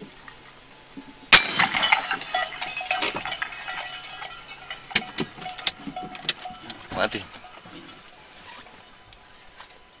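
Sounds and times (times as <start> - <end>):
metallic clanks and knocks: 1.4 - 8.0.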